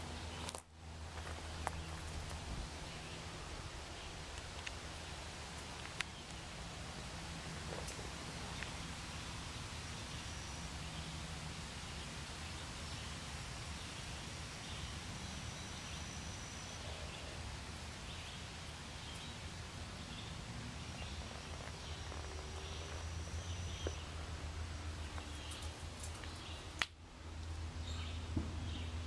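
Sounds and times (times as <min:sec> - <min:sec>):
low rumble and hiss: 0:00.0 - 0:29.0
bird chirps: 0:20.9 - 0:24.2.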